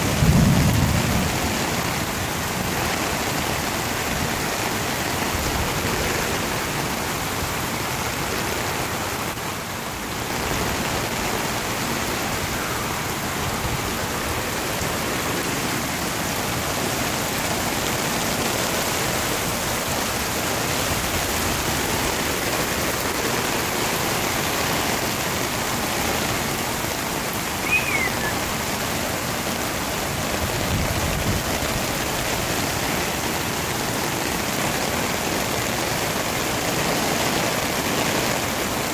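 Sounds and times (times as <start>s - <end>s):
floodwater rushing: 0.0s - 38.9s
high falling chirp: 27.6s - 28.6s.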